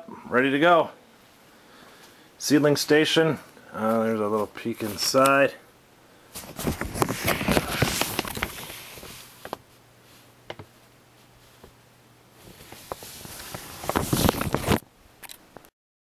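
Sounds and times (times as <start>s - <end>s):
camera handling rustling and knocks: 6.4s - 8.7s, 12.5s - 15.4s.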